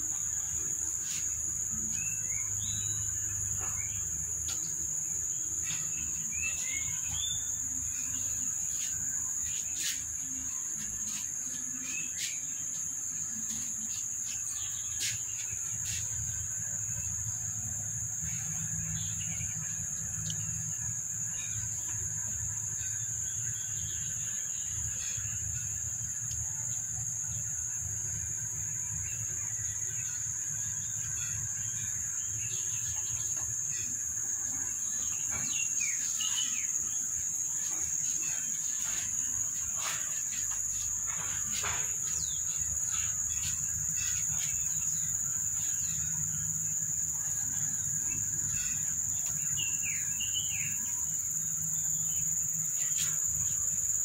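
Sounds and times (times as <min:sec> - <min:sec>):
high-pitched insect drone: 0:00.0 - 0:54.0.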